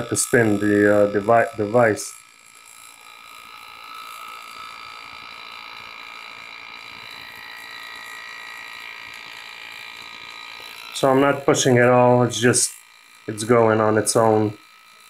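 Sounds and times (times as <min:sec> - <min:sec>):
pneumatic engraving tool running: 0:00.0 - 0:15.0.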